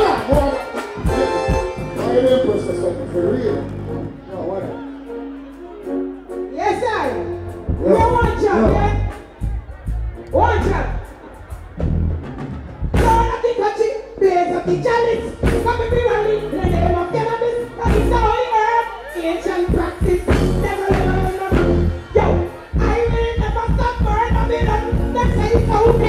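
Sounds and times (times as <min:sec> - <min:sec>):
reggae backing track with heavy bass: 0:00.0 - 0:26.0
woman singing into a microphone: 0:22.9 - 0:26.0.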